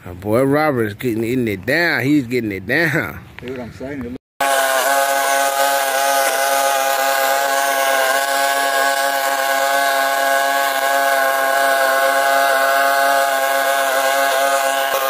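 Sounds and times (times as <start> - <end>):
mower cutting weeds and grass: 4.4 - 15.0
string mower engine running: 4.4 - 15.0.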